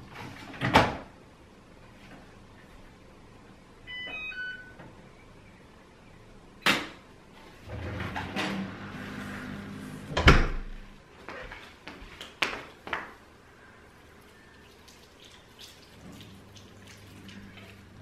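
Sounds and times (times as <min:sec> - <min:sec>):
short electronic beeps: 0:03.9 - 0:04.8
washing machine humming: 0:07.5 - 0:11.1, 0:14.0 - 0:18.0
closet door shutting: 0:07.7 - 0:10.7.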